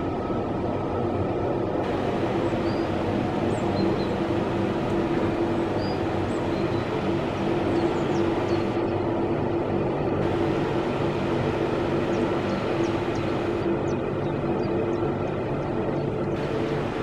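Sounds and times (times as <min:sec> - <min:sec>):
distant train rumble: 0:00.0 - 0:17.0.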